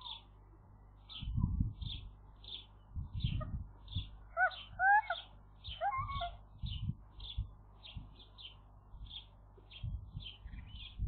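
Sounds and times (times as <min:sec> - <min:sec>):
bird rising calls: 0:03.2 - 0:08.0
bird short high calls: 0:04.4 - 0:06.8.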